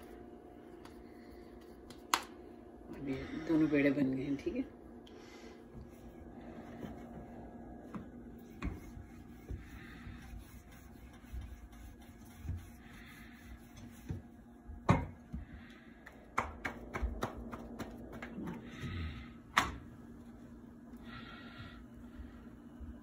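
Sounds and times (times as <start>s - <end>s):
low steady hum: 0.0s - 23.0s
rolling pin rubbing dough: 5.9s - 14.8s.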